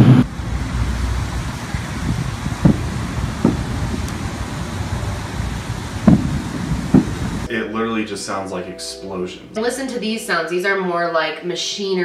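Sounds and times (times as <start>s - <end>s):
distant booms: 0.0s - 7.5s
loud low rumble: 0.0s - 7.5s
low traffic rumble: 0.0s - 7.6s.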